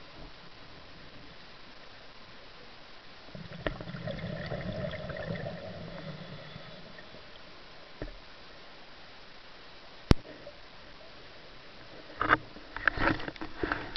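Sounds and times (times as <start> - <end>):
underwater bubbling gurgle: 3.3 - 7.6.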